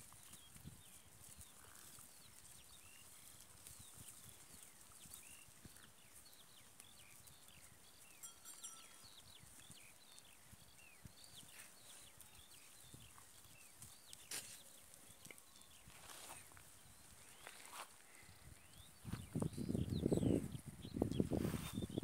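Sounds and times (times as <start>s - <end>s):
high chirping calls: 5.1s - 22.0s.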